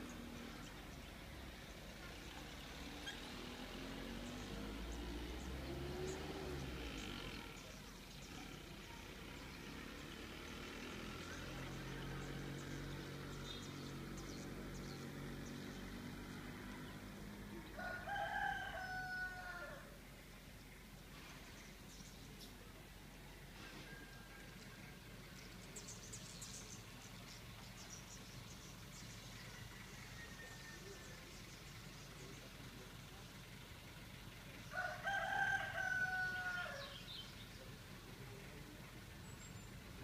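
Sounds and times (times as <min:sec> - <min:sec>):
faint village ambience: 0:00.0 - 0:40.0
rooster crowing: 0:17.7 - 0:20.0, 0:29.4 - 0:31.1, 0:34.7 - 0:37.0.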